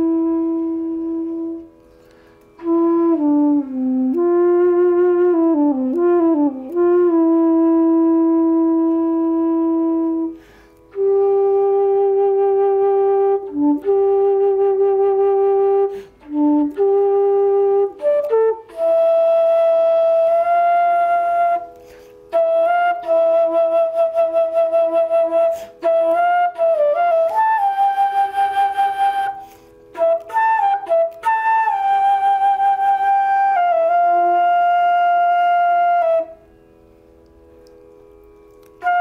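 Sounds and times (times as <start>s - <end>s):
solo flute melody: 0.0s - 39.0s
player's short breaths: 1.8s - 2.5s, 10.4s - 10.9s, 21.8s - 22.3s, 29.4s - 29.9s.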